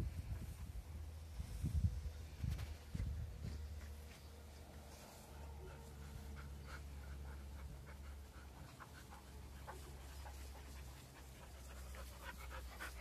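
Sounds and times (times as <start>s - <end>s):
dogs panting: 5.4s - 13.0s.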